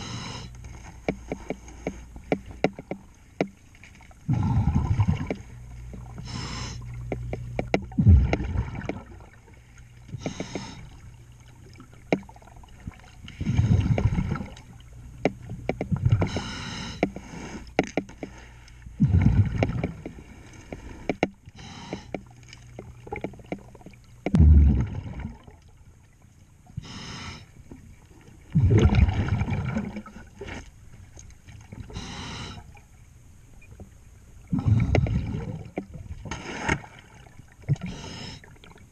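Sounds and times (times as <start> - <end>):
regulator hissing inhale: 0.0 - 0.6, 6.2 - 6.9, 10.2 - 11.0, 16.2 - 18.8, 20.3 - 22.2, 26.8 - 27.6, 31.9 - 32.7, 37.8 - 38.6
bubbling exhale: 4.3 - 5.3, 34.5 - 35.7.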